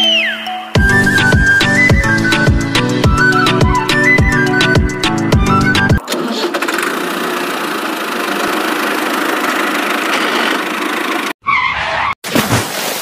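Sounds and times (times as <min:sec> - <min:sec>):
engine idling: 0:06.5 - 0:11.4.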